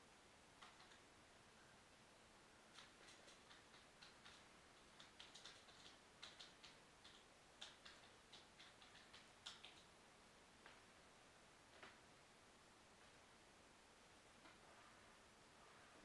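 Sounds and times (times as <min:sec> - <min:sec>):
light clicks and ticks: 0:00.6 - 0:01.1, 0:02.7 - 0:10.0.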